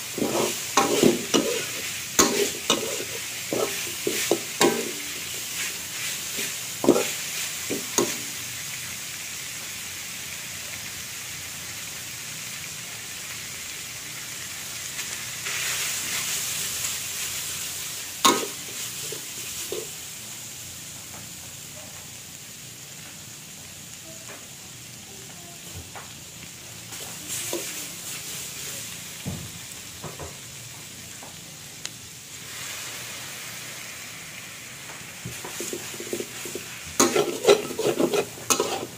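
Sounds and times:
stir-fry sizzling in a wok: 0:00.0 - 0:38.9
metal spatula clanking on wok: 0:00.2 - 0:05.3, 0:06.8 - 0:08.2, 0:18.3 - 0:18.6, 0:35.6 - 0:38.9.

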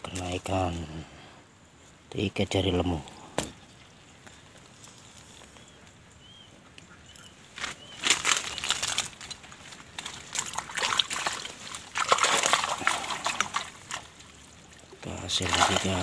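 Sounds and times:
water sloshing and splashing: 0:08.0 - 0:16.0.

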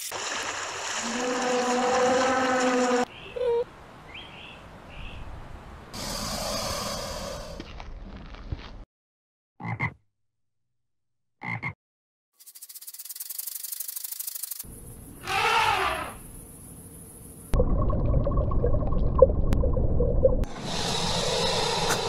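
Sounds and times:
animal raspy buzz: 0:06.0 - 0:07.6, 0:15.2 - 0:16.3, 0:20.5 - 0:22.0
animal croak-like calls: 0:15.2 - 0:16.2.

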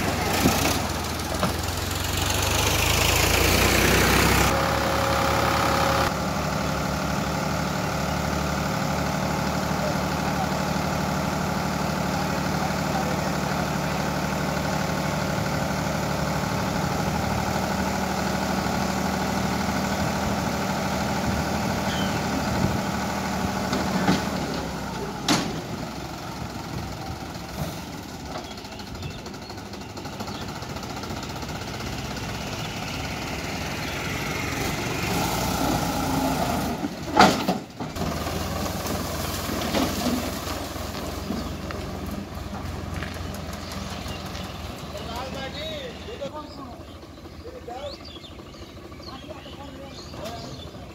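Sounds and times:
tractor diesel engine running: 0:00.0 - 0:50.9
sand load dumping: 0:34.6 - 0:43.7.

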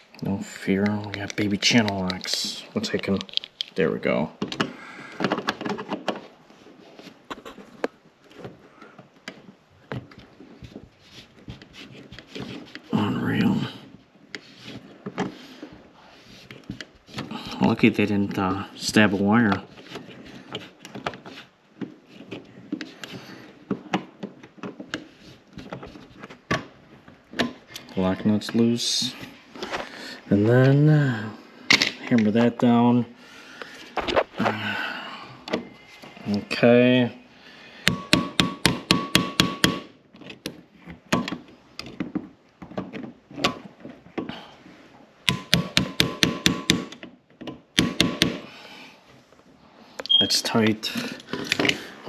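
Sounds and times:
hand tools clicking on metal: 0:00.1 - 0:03.8.

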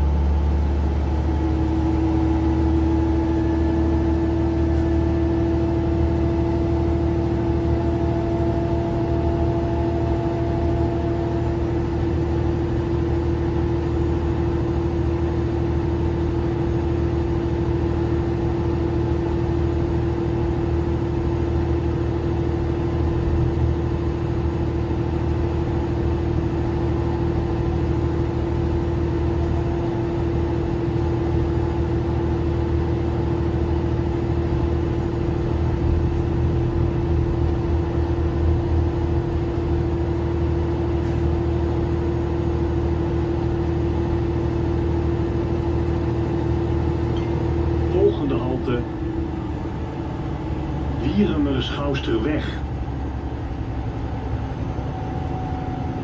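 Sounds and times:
bus engine and road drone: 0:00.0 - 0:56.0
steady whine: 0:00.0 - 0:56.0.

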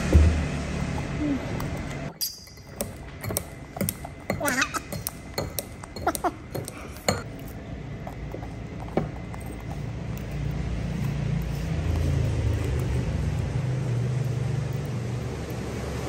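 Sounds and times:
metal clinking on ceramic bowl: 0:02.1 - 0:07.5.

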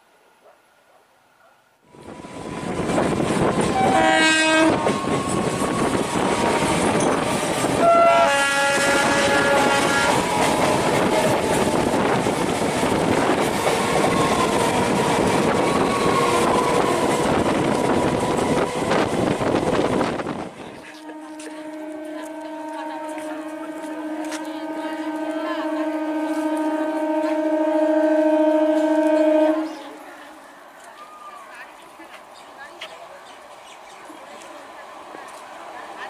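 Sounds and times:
train horn blasts: 0:03.5 - 0:12.2, 0:20.8 - 0:30.6
wheel and track clatter: 0:04.8 - 0:07.8.

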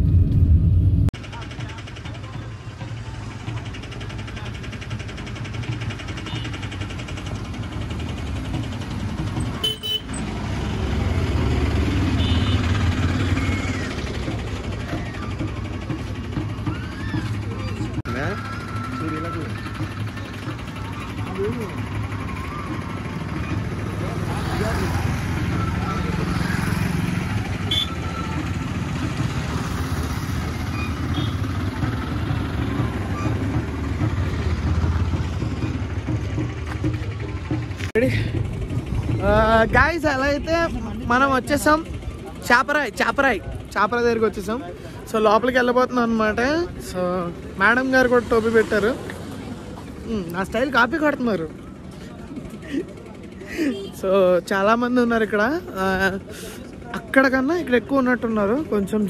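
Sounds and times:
vehicle engine rumble: 0:00.0 - 0:59.0
horn toots: 0:09.6 - 0:10.2, 0:12.0 - 0:13.3, 0:27.6 - 0:28.2.

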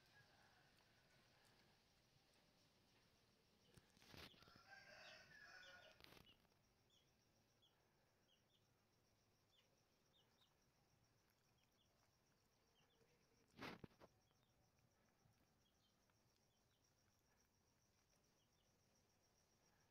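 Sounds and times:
rooster crowing: 0:00.0 - 0:01.6, 0:04.4 - 0:06.1
faint high chirps: 0:00.0 - 0:19.9.

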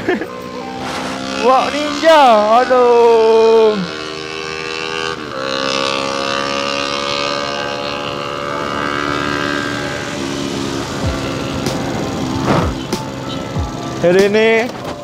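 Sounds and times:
motorcycle engine droning: 0:00.0 - 0:15.0.

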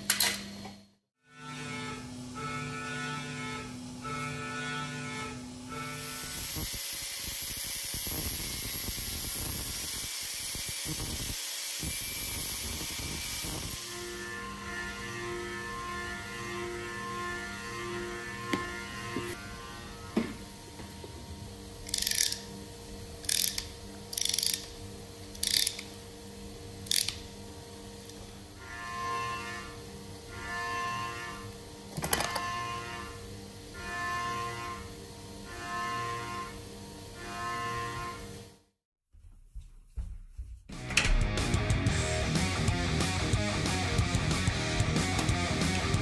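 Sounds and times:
rivet tool ratcheting clicks: 0:21.8 - 0:22.4, 0:23.2 - 0:24.7, 0:25.3 - 0:25.9, 0:26.8 - 0:27.2
angle grinder grinding: 0:21.8 - 0:22.6, 0:23.2 - 0:26.0
music: 0:40.7 - 0:46.0.

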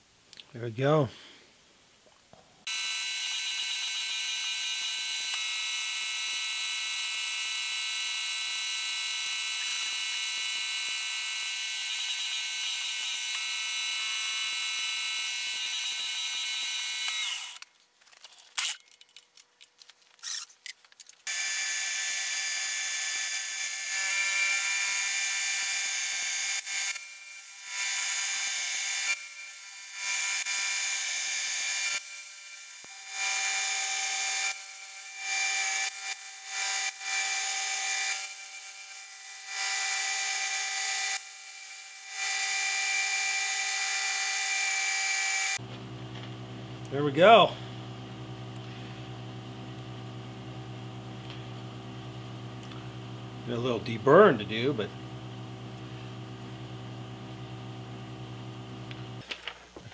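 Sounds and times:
milling machine whining: 0:45.5 - 0:59.2.

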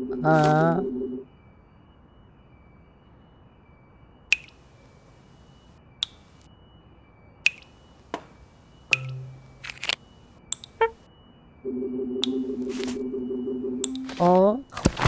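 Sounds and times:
faint high chirping: 0:02.6 - 0:14.8
sharp cartoon clicks: 0:04.3 - 0:04.6, 0:07.5 - 0:07.7, 0:08.9 - 0:11.0.

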